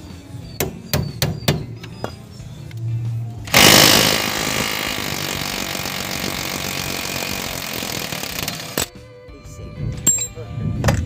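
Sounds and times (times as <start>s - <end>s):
impact wrench rattling: 3.5s - 8.9s.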